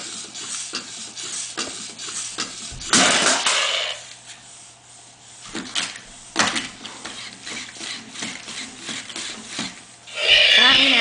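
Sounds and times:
robot toy motors and legs clattering: 0.0s - 4.0s, 5.5s - 11.0s
sharp noisy bursts: 10.1s - 11.0s.

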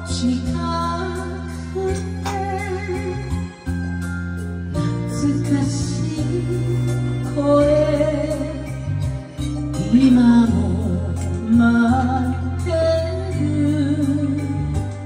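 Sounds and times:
woman singing into microphone: 0.0s - 3.7s, 4.7s - 15.0s
karaoke backing track: 0.0s - 15.0s.

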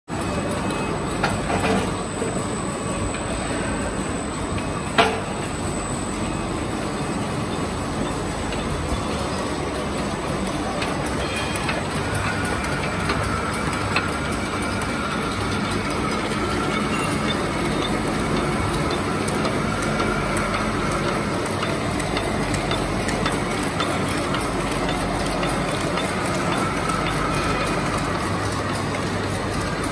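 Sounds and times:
machine clattering: 6.7s - 29.9s.

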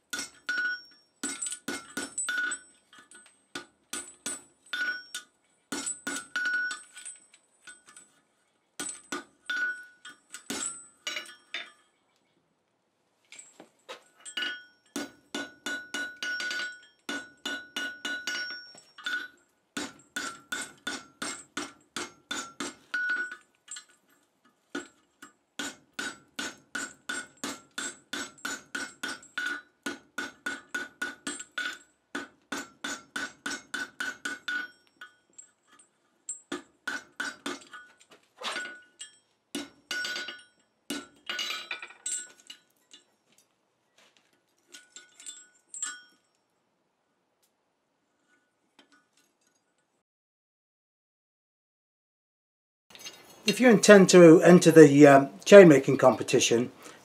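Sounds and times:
hammer striking ringing anvil: 0.2s - 2.7s, 4.0s - 6.8s, 14.3s - 23.4s.

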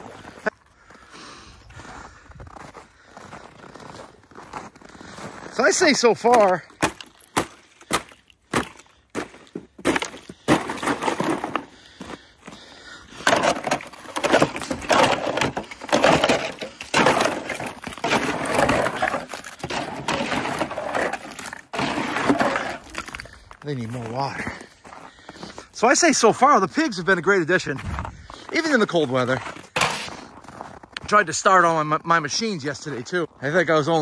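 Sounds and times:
ice chunks crunching and clattering: 2.6s - 25.5s, 27.8s - 31.0s
ice cracking and knocking: 5.6s - 24.7s.

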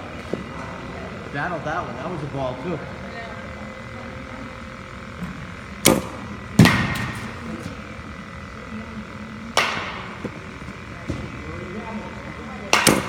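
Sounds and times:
bat hitting baseball echoing: 5.5s - 8.6s, 9.5s - 11.4s, 12.6s - 13.0s.

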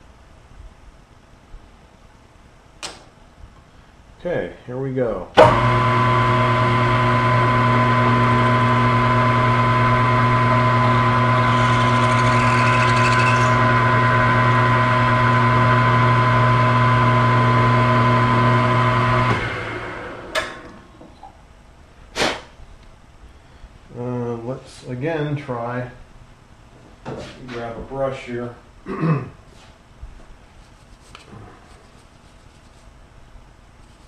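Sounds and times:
milling machine motor running: 6.4s - 20.7s.

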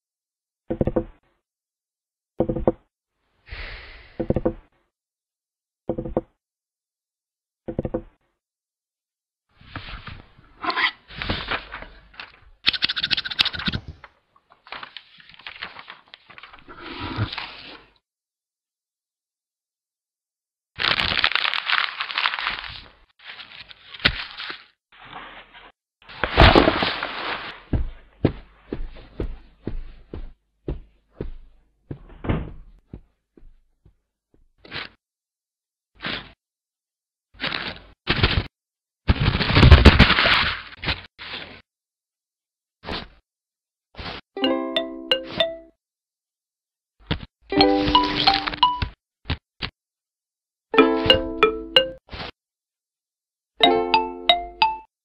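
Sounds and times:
rustling: 20.8s - 27.8s.

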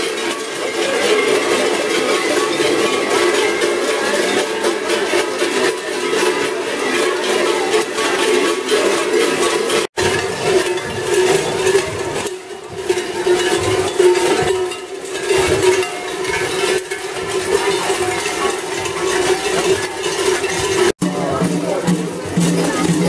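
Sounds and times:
large cowbells clanging: 0.0s - 23.0s.

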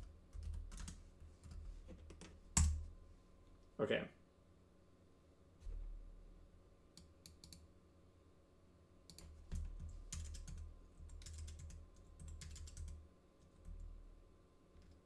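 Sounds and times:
keyboard typing: 0.0s - 2.8s, 7.2s - 7.6s, 9.1s - 13.0s.

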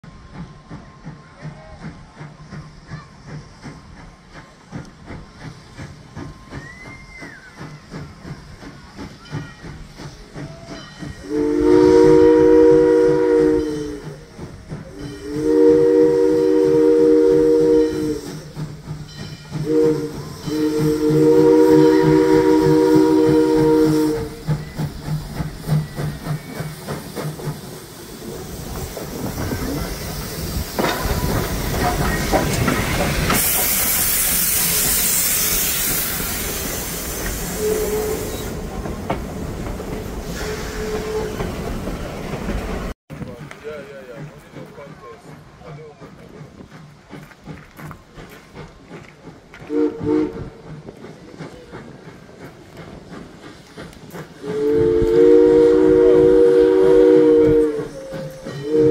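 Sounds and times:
steam hissing: 0.0s - 58.9s
locomotive engine rumble: 0.1s - 58.8s
steam locomotive chime whistle: 9.0s - 27.6s, 33.3s - 38.6s, 40.2s - 41.5s, 49.6s - 50.8s, 54.4s - 58.9s.

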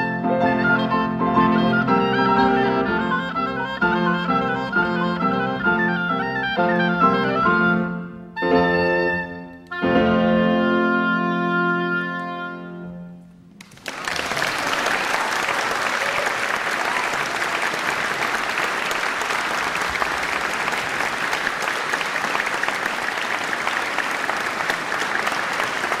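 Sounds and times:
oboe and piano note: 0.0s - 13.4s
audience applause: 13.6s - 26.0s.

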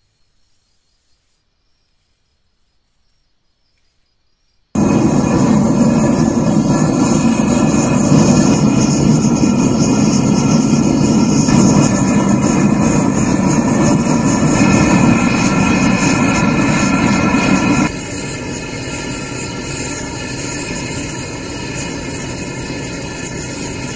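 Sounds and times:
forge roaring: 4.8s - 23.9s.

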